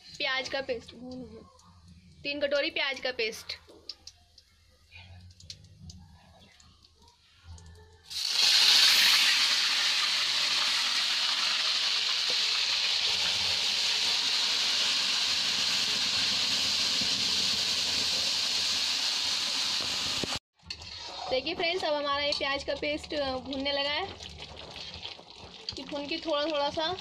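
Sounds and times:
paste sizzling in hot oil: 0:08.1 - 0:27.0.

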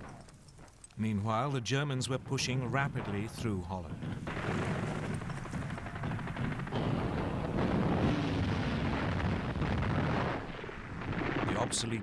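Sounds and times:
low rumble: 0:02.4 - 0:11.7
gunfire crackle: 0:02.4 - 0:12.0
explosions: 0:02.6 - 0:12.0.

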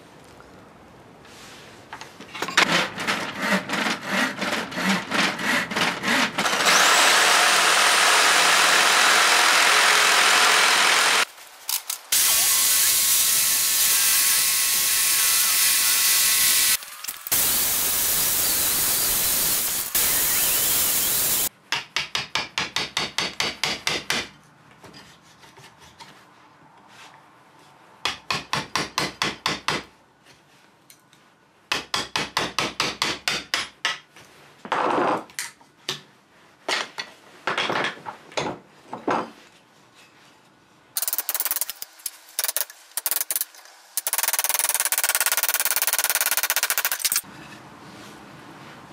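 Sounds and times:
reciprocating saw cutting wood: 0:02.6 - 0:11.3, 0:12.1 - 0:21.5
hammer striking chisel into wood: 0:21.7 - 0:24.3, 0:28.1 - 0:29.9, 0:31.7 - 0:34.0.

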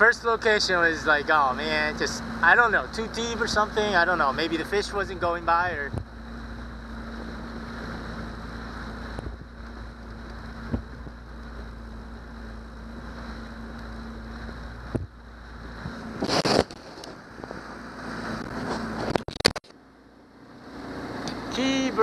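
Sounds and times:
outboard motor running: 0:00.0 - 0:22.0
water noise: 0:00.0 - 0:22.0
wind: 0:00.0 - 0:22.0
camera handling rustle: 0:16.2 - 0:17.2.

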